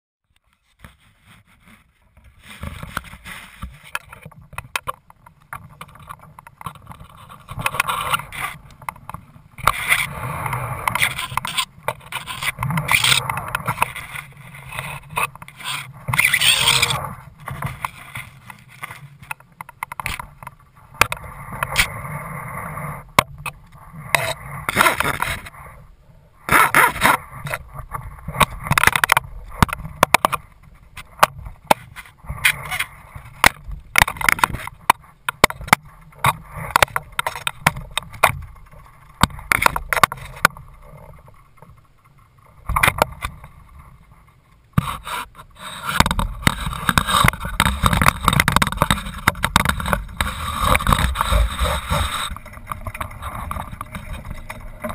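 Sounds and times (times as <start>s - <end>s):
clicks and rattles from rigging: 26.5s - 54.9s.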